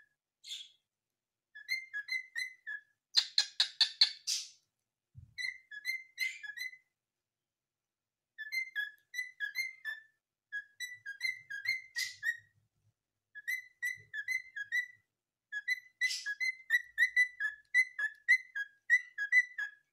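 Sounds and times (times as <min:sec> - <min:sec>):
cockatiel whistling: 0:01.6 - 0:04.4, 0:05.4 - 0:06.9, 0:08.4 - 0:12.5, 0:13.4 - 0:19.9.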